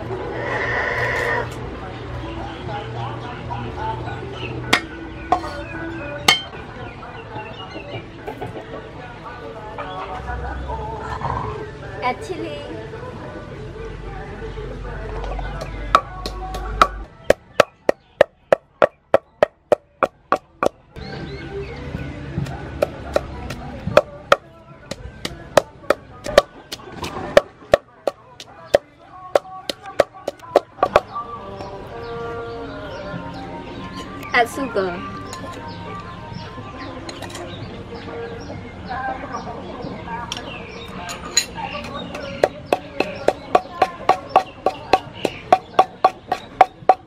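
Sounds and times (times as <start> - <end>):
pestle pounding in wooden mortar: 15.6 - 20.8, 22.4 - 31.1, 41.9 - 47.0.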